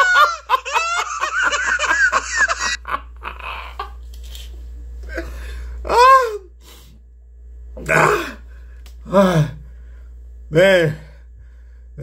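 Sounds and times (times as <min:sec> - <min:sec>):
man laughing heartily: 0:00.0 - 0:04.0.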